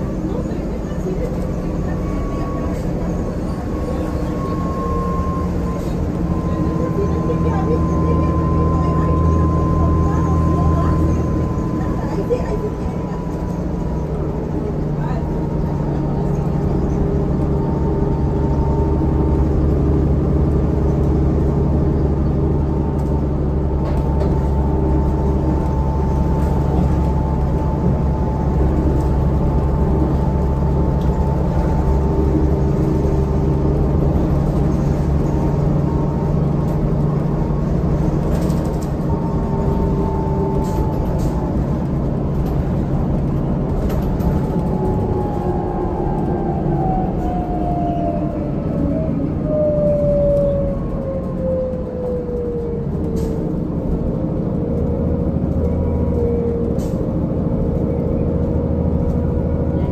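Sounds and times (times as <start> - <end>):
bus diesel engine running: 0.0 - 59.9.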